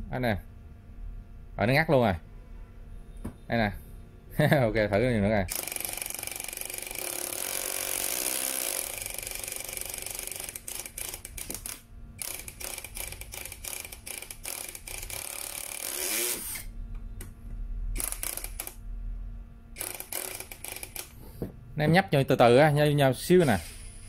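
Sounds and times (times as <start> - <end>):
screwdriver motor whirring: 5.5 - 16.7, 18.0 - 18.8, 19.8 - 21.2.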